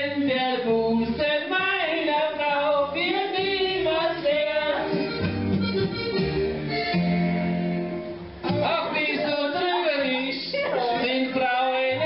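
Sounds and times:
man singing into microphone: 0.0s - 5.0s, 8.5s - 12.0s
accordion sing-along music: 0.0s - 12.0s.

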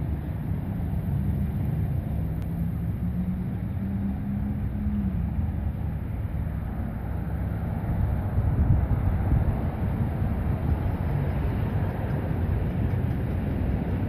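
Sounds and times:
diesel locomotive engine drone: 0.0s - 14.0s
wind buffeting microphone: 7.0s - 14.0s.

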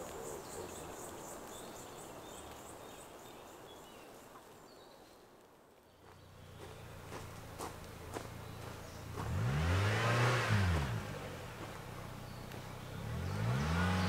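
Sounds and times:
insects chirring: 0.0s - 4.8s
bird chirps: 11.6s - 14.0s.

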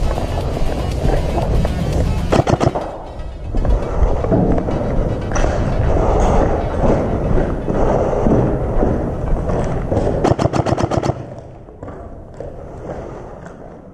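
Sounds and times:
airsoft rifle full-auto burst: 2.3s - 2.9s, 10.2s - 11.4s.

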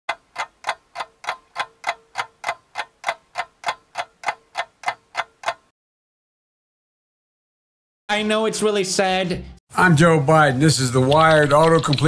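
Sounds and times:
fast clock ticking: 0.1s - 5.7s, 11.1s - 12.0s.

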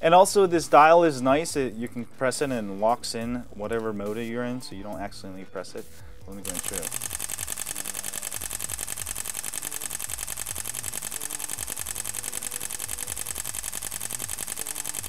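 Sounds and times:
camera shutter burst clicks: 6.5s - 15.0s.

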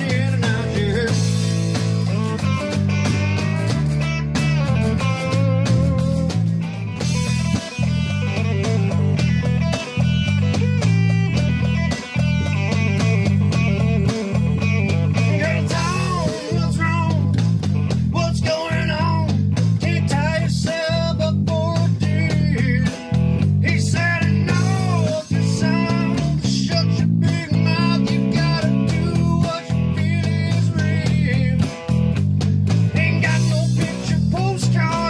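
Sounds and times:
man singing: 0.0s - 2.7s, 12.7s - 32.0s, 32.9s - 35.0s
bass line: 0.0s - 35.0s
electric guitar: 0.0s - 35.0s.

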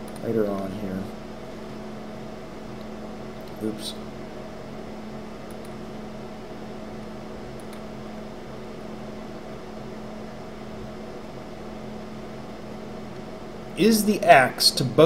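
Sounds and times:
room hum and hiss: 0.0s - 15.0s
mouse clicks: 5.4s - 5.8s, 7.6s - 7.9s.

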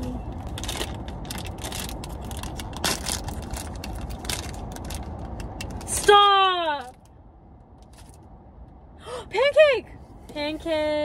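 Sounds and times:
foil wrapper crinkling: 0.4s - 5.3s.

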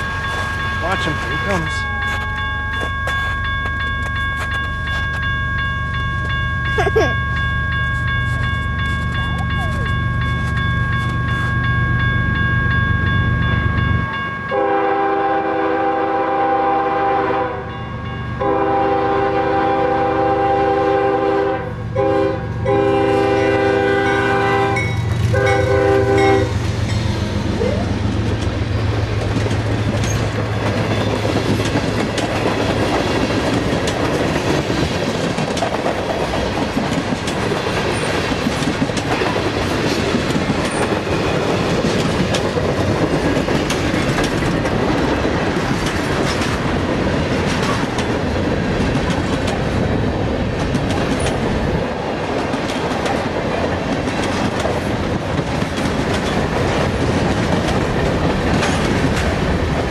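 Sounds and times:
crossing bell ringing: 0.0s - 45.4s
diesel locomotive rumbling: 0.0s - 59.9s
locomotive horn blasts: 14.5s - 17.8s, 18.4s - 26.6s
train wheels clattering over rail joints: 26.8s - 59.9s.

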